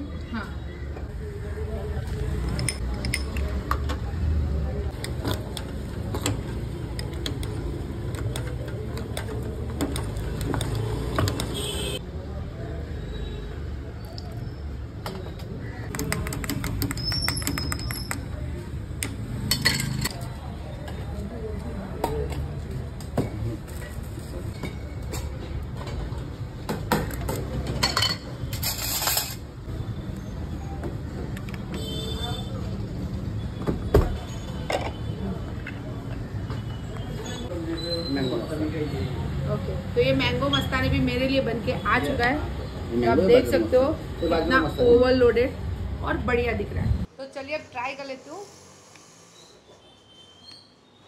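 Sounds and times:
utensils clinking on glass and steel: 0:19.4 - 0:20.1, 0:27.8 - 0:29.5
metal spoon scraping a glass: 0:28.5 - 0:29.4.

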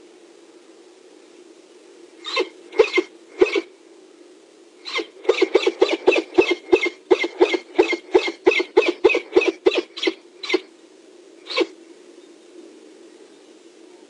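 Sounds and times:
falcon harsh kak calls: 0:02.2 - 0:03.7, 0:04.8 - 0:10.7, 0:11.4 - 0:11.8.

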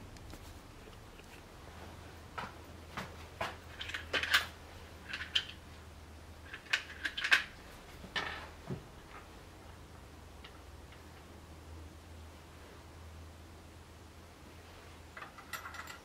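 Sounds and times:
metal tools clinking: 0:15.2 - 0:16.0.

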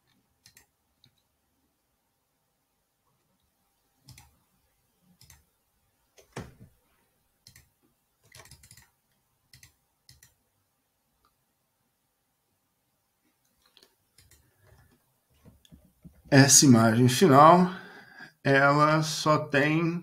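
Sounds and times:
keyboard keystrokes: 0:07.4 - 0:08.9, 0:09.5 - 0:10.4
mouse clicks: 0:09.5 - 0:10.4.

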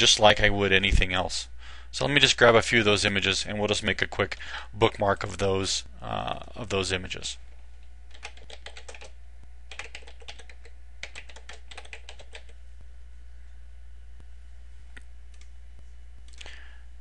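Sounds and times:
steady low hum: 0:00.0 - 0:17.0
typing on computer keyboard: 0:08.1 - 0:09.1, 0:09.7 - 0:12.6.

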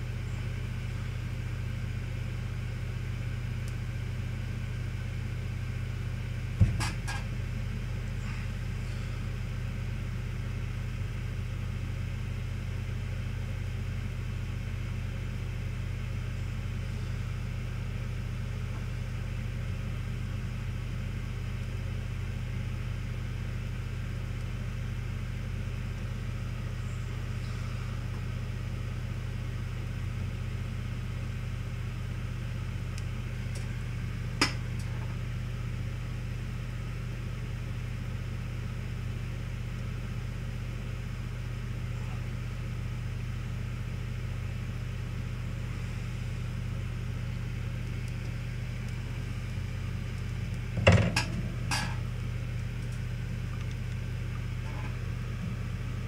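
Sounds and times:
hot-air station blowing hum: 0:00.0 - 0:11.4, 0:15.3 - 0:56.0.

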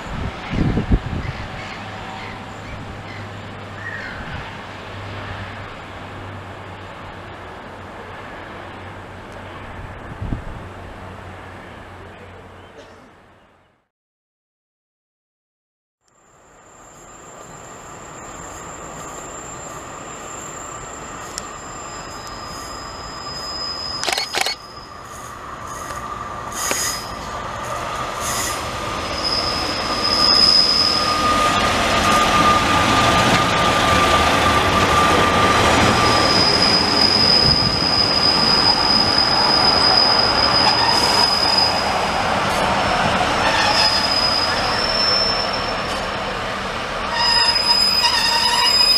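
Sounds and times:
high-pitched wheel squeal: 0:16.7 - 0:25.2, 0:28.2 - 0:42.1, 0:43.4 - 0:46.0, 0:47.1 - 0:48.9
train rumble: 0:16.8 - 0:48.9.

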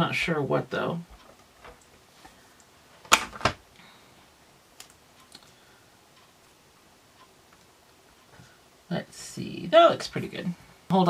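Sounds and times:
sharp clicks: 0:04.8 - 0:05.5.

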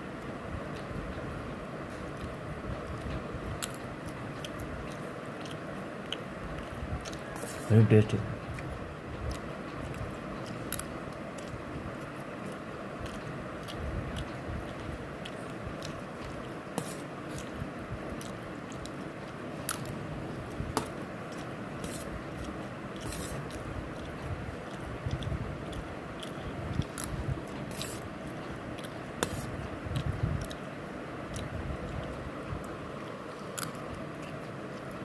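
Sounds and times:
person chewing noodles: 0:00.1 - 0:07.7, 0:08.4 - 0:35.0
fork scraping bowl: 0:16.8 - 0:17.5, 0:21.8 - 0:22.1, 0:23.0 - 0:23.5, 0:27.7 - 0:28.1, 0:29.2 - 0:29.6.

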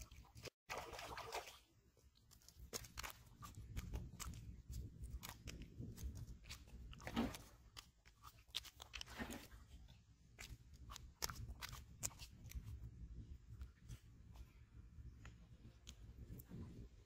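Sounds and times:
fish splashing at surface: 0:00.0 - 0:01.7
fish flopping on dry mud: 0:00.0 - 0:12.9.

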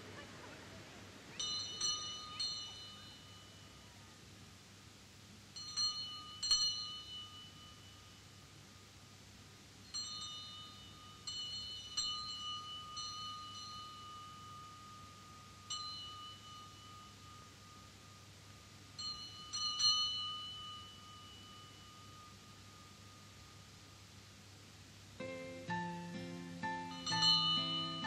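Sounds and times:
bicycle bell ringing: 0:01.4 - 0:04.0, 0:05.6 - 0:08.5, 0:09.9 - 0:23.6, 0:26.6 - 0:28.0.

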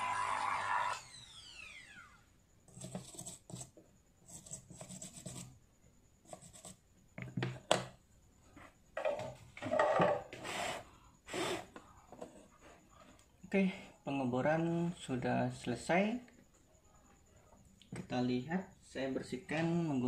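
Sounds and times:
electric drill whining: 0:00.0 - 0:02.3.

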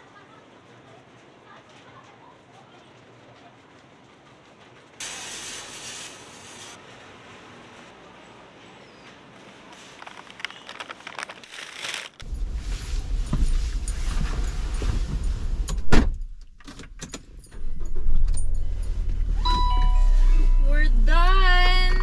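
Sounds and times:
rustling and clatter: 0:09.0 - 0:15.6.

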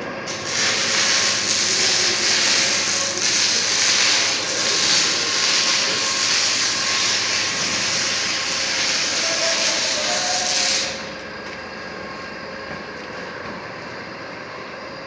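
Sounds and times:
loud steady hiss: 0:00.3 - 0:11.2.

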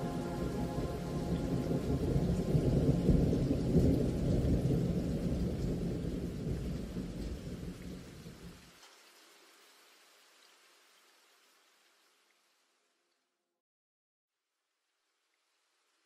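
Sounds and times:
rolling thunder: 0:00.0 - 0:08.4
rain: 0:00.0 - 0:13.2, 0:15.0 - 0:16.0.

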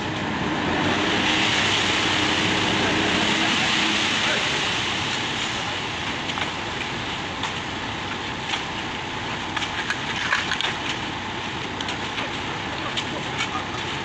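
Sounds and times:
concrete mixer truck running: 0:00.0 - 0:14.0
rakes scraping wet concrete: 0:00.8 - 0:14.0.

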